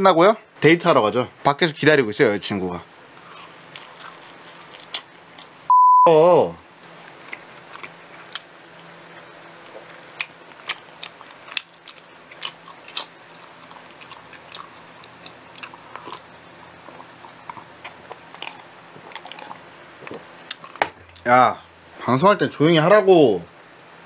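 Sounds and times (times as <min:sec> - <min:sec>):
chewing mouth clicks and smacks: 0:10.2 - 0:21.2.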